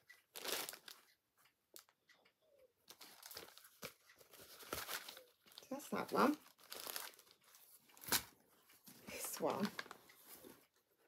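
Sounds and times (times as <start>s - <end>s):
bag rustling and crinkling: 2.9s - 8.3s.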